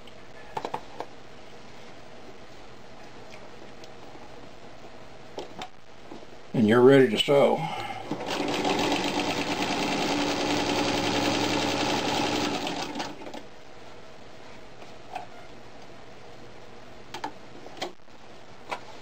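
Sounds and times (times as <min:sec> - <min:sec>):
sewing machine stitching: 0:08.1 - 0:13.4.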